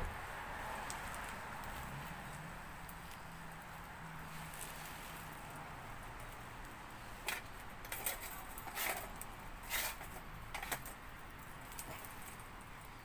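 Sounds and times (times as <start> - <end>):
metal grill grate clinking: 7.2 - 12.6.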